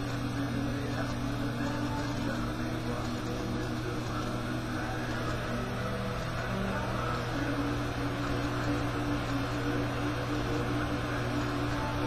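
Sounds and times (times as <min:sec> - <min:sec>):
low drone with held tones: 0:00.0 - 0:12.0.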